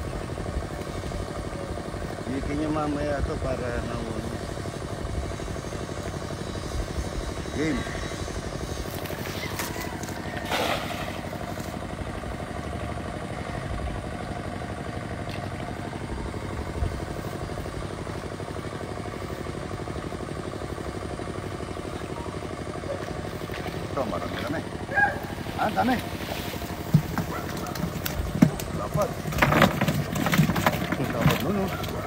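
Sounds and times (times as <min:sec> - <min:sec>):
small engine droning: 0:00.0 - 0:32.0
cast net splashing into water: 0:10.4 - 0:11.3.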